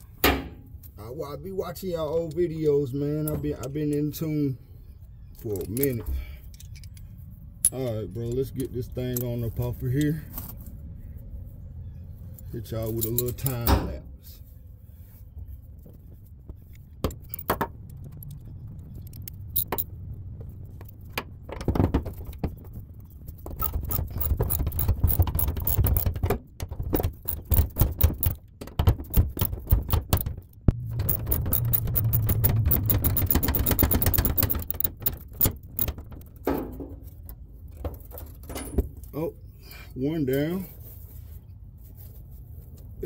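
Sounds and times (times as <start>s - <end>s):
tools clinking and clattering: 12.8s - 14.0s, 16.7s - 22.8s, 23.4s - 39.1s
ratchet clicking: 18.2s - 19.9s, 23.6s - 26.1s, 26.9s - 36.3s.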